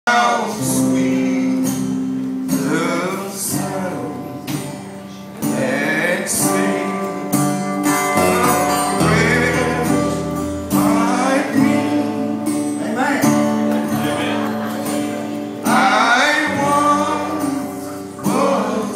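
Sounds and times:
man singing into microphone: 0:00.1 - 0:07.4, 0:08.0 - 0:12.6, 0:15.6 - 0:18.9
guitar accompaniment: 0:00.1 - 0:18.9.

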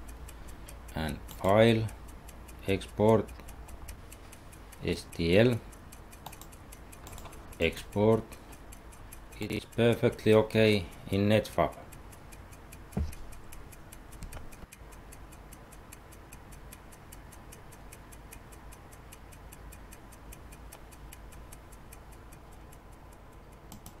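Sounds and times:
rapid ticking: 0:00.0 - 0:24.0
low thump: 0:13.0 - 0:13.2.

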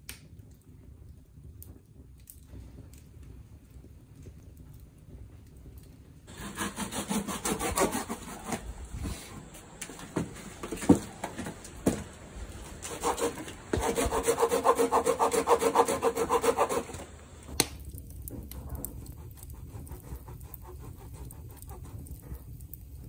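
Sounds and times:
hand tool rubbing wood: 0:06.3 - 0:17.6.

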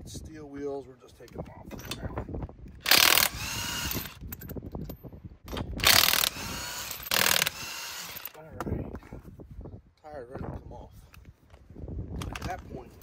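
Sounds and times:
nut spinning whirr: 0:02.8 - 0:04.4, 0:05.6 - 0:08.4.

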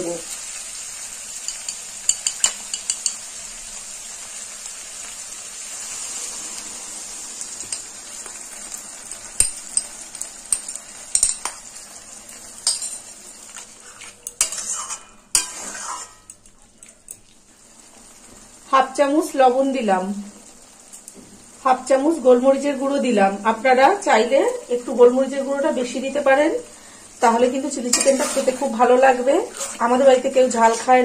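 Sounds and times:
vegetables sizzling in a wok: 0:00.0 - 0:31.0
spoon scraping a bowl: 0:13.5 - 0:16.4, 0:27.9 - 0:28.8, 0:29.4 - 0:29.9.

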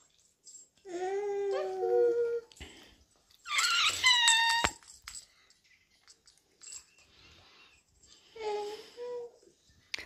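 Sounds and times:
child squealing: 0:03.5 - 0:04.8.

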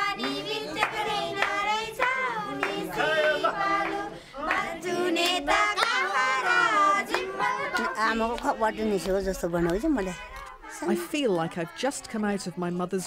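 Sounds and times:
girls singing in unison: 0:00.0 - 0:12.6
hand clapping: 0:00.2 - 0:03.1, 0:03.8 - 0:10.6.

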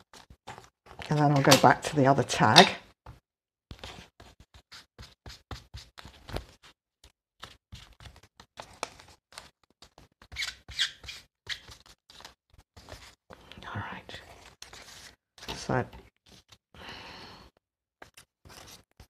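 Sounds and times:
paper rustling: 0:00.0 - 0:01.6, 0:03.7 - 0:13.5, 0:14.2 - 0:16.6, 0:18.0 - 0:19.0.

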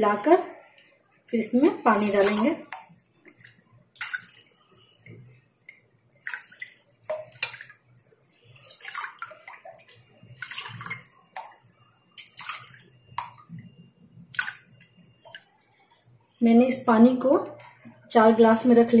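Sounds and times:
liquid pouring and splashing: 0:01.8 - 0:15.6.

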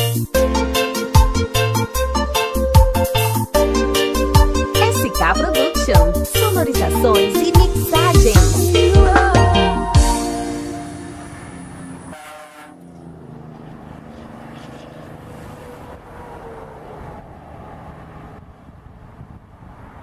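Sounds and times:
song chord: 0:00.0 - 0:12.2
highway traffic: 0:00.0 - 0:20.0.

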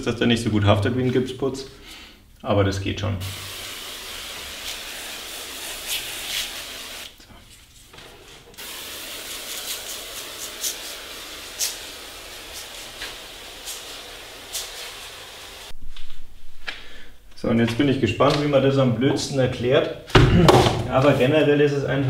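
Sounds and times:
pressure sprayer hissing: 0:03.2 - 0:07.2, 0:08.6 - 0:15.8.

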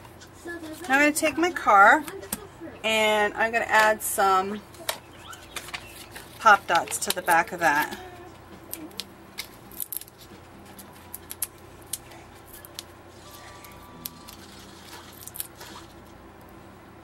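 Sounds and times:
paper clicks and rustles: 0:04.8 - 0:08.1.

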